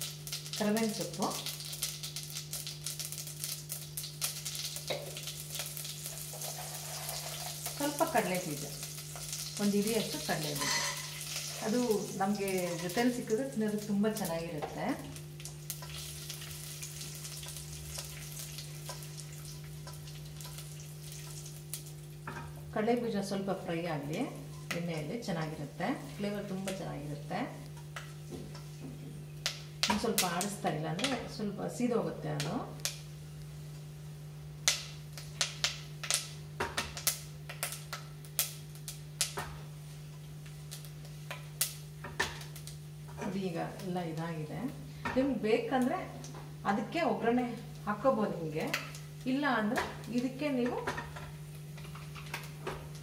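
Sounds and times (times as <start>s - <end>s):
small pops and crackles: 0.0s - 10.2s, 14.6s - 21.9s, 29.4s - 31.2s, 34.6s - 43.9s, 48.6s - 53.0s
spices frying in ghee: 0.0s - 53.0s.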